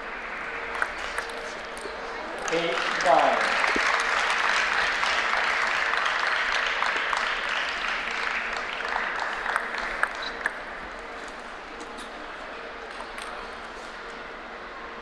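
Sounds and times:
audience applauding: 0.0 - 11.2.

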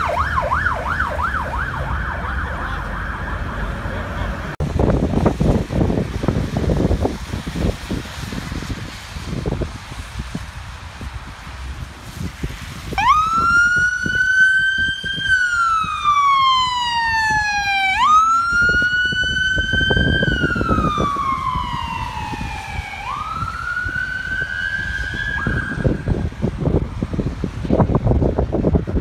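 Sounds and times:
ambulance siren wailing: 0.0 - 4.6, 12.9 - 26.8
wind rumble on microphone: 0.0 - 29.0.

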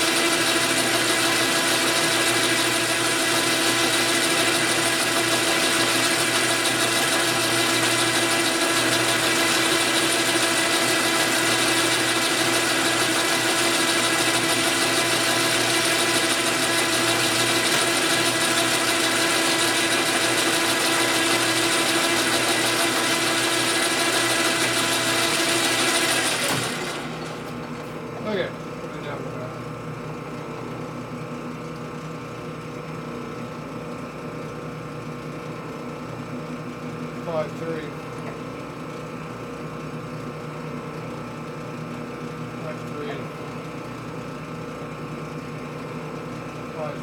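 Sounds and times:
metal lathe whining: 0.0 - 28.4.

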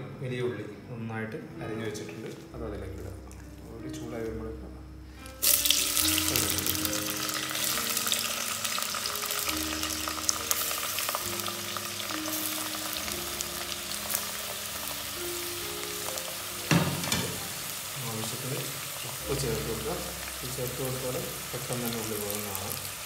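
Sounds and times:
onions sizzling in hot oil: 5.4 - 23.0.

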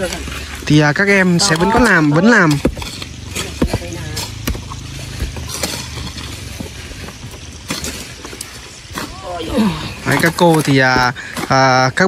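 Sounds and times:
crowbar and stones knocking on boulder: 0.0 - 12.0
low steady rumble: 2.8 - 9.2.

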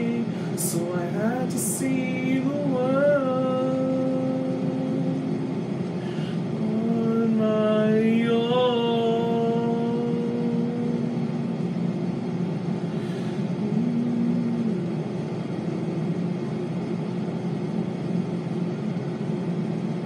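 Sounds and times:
low rumbling noise: 0.0 - 20.0.

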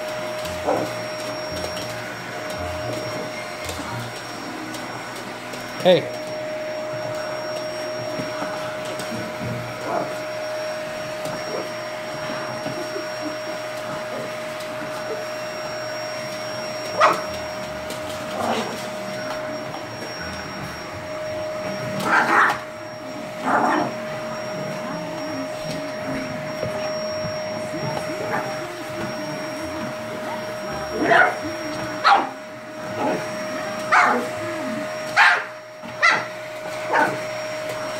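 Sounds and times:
vacuum cleaner running: 0.0 - 37.9
dog barking: 17.0 - 17.2, 32.0 - 32.3, 33.9 - 34.2, 35.2 - 36.3, 36.9 - 37.2.

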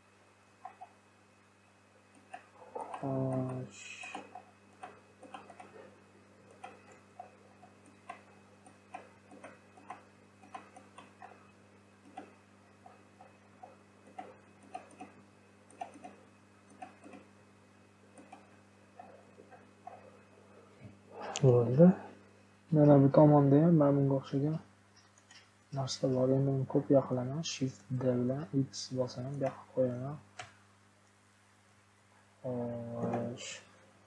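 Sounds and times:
scroll wheel ticks: 2.1 - 5.9, 6.5 - 17.3, 18.1 - 20.1, 32.9 - 33.6
mouse clicks: 6.5 - 11.4
breathy hiss: 21.1 - 22.2.

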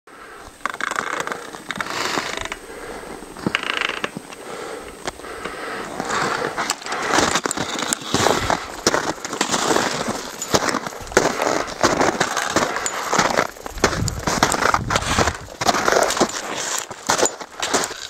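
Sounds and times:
footsteps crunching on frozen snow: 5.1 - 18.0.

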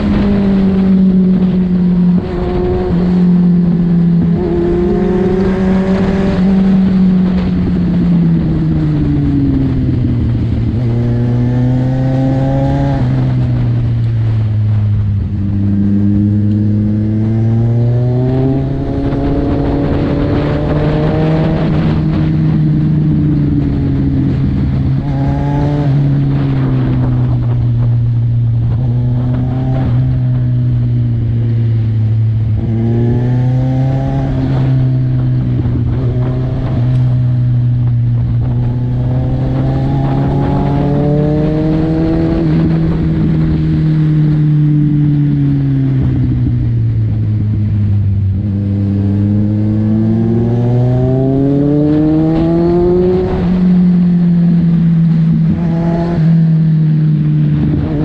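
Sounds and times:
motorcycle engine revving: 0.0 - 58.0
wind noise: 0.0 - 58.0.

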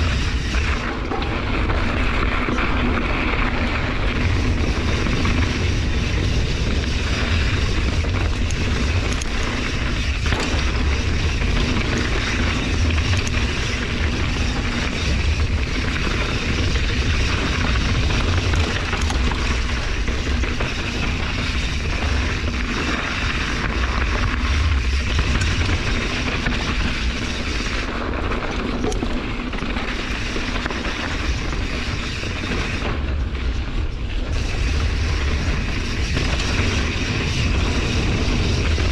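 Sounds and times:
bike rattling and ticking: 0.0 - 38.9
bike tyres rolling on dirt: 0.0 - 38.9
wind rushing over microphone: 0.0 - 38.9.

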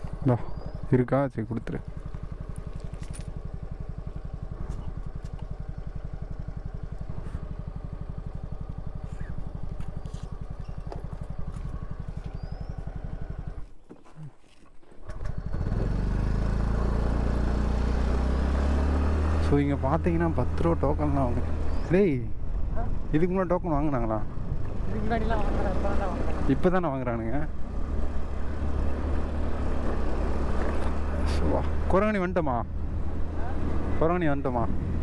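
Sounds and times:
scooter engine idling: 0.0 - 1.0, 1.7 - 13.7.

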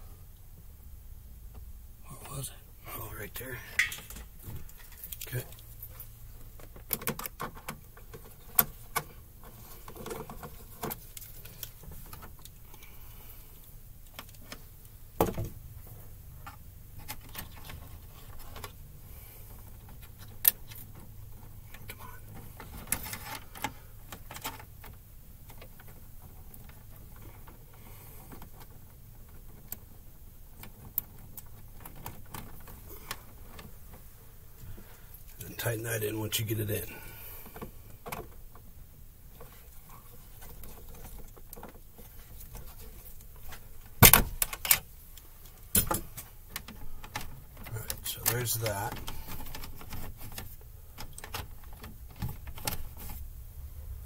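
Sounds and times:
faint low hum: 0.0 - 54.0
wire rattling in metal box: 3.6 - 5.6.

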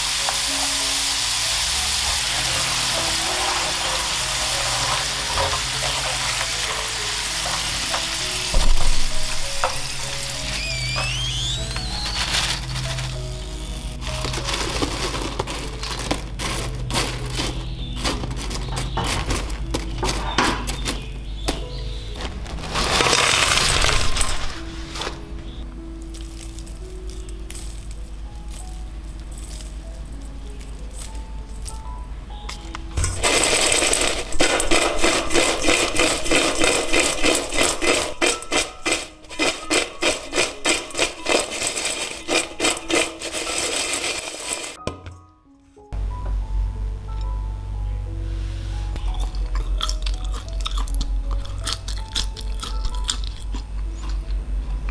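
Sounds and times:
fried potato sticks shaken in metal bowl: 2.1 - 10.6, 33.0 - 44.8
paper crinkling: 2.3 - 20.2, 22.0 - 27.5, 33.0 - 44.8.

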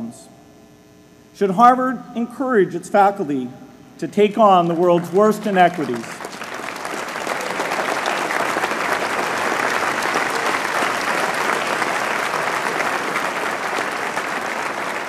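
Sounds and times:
crowd applauding: 4.6 - 15.0.

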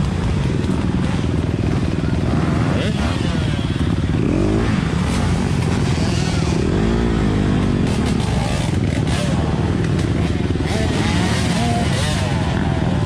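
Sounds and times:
dirt bike engines running: 0.0 - 13.0
engine revving: 2.3 - 13.0.

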